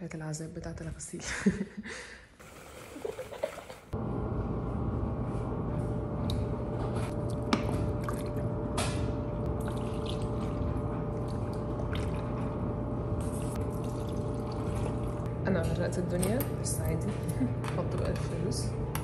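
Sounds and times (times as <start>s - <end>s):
clothes splashing in water: 2.4s - 4.0s.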